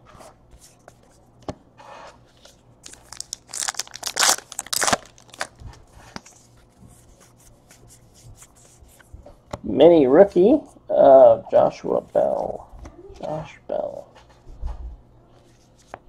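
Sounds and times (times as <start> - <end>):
trading cards rustling: 2.8 - 5.6
crinkling: 2.8 - 5.8.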